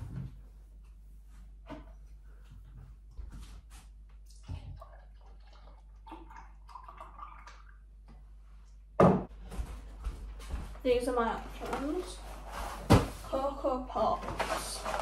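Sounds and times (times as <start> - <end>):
drink gurgling into a glass: 4.5 - 7.9
loud thump: 9.0 - 9.3.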